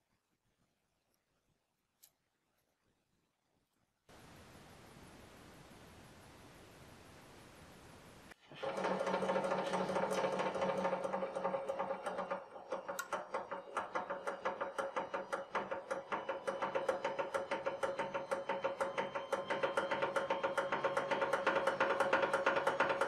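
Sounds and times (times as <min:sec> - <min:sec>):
pump motor humming: 0:08.4 - 0:23.0.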